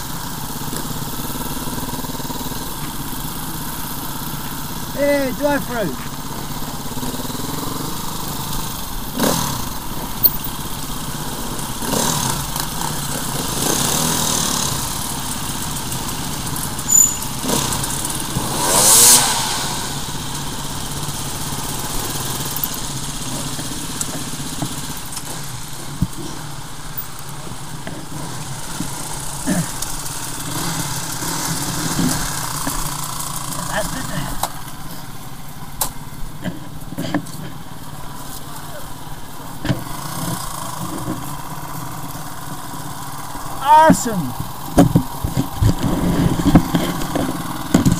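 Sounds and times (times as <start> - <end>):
dirt bike engine idling: 0.0 - 47.9
rush of noise: 17.6 - 21.0.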